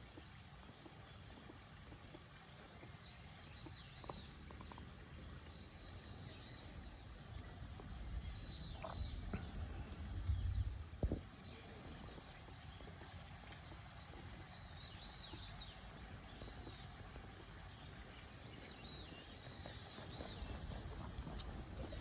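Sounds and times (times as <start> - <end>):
microphone handling rumble: 8.2 - 11.4.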